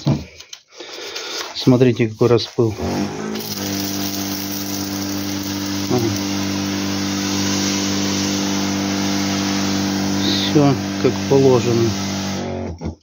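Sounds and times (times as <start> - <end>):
electric pump humming: 2.8 - 12.8
nozzle hissing spray: 3.8 - 12.4.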